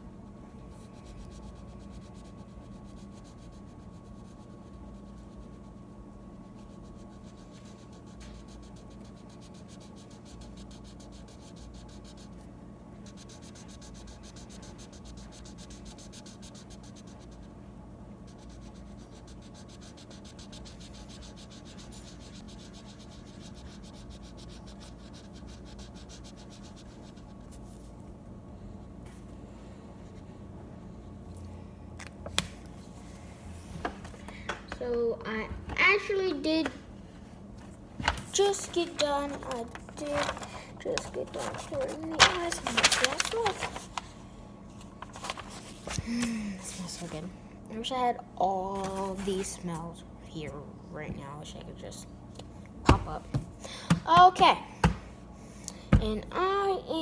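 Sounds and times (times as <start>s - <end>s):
steady low hum: 0.0s - 57.0s
marker scratching on paper: 0.7s - 5.9s, 6.5s - 17.5s, 18.2s - 27.9s.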